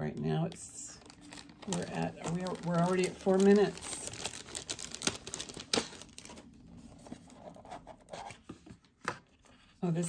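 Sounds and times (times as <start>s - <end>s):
bag rustling: 1.0s - 6.4s.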